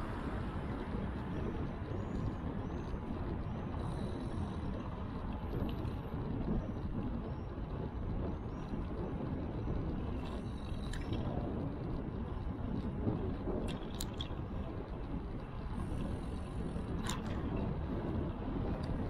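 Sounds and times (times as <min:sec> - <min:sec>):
road noise: 0:00.0 - 0:06.3
wind buffeting microphone: 0:00.0 - 0:19.0.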